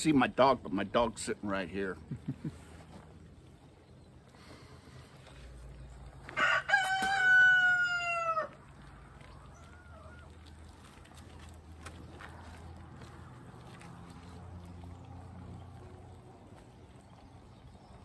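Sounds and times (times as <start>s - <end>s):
rooster crowing: 6.3s - 8.6s.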